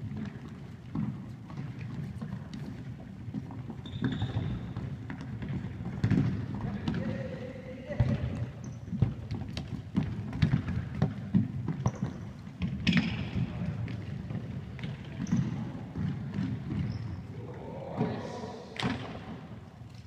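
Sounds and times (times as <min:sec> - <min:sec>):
football kicked and bouncing: 0:00.0 - 0:07.2, 0:07.9 - 0:17.3
running footsteps on hall floor: 0:00.0 - 0:17.6.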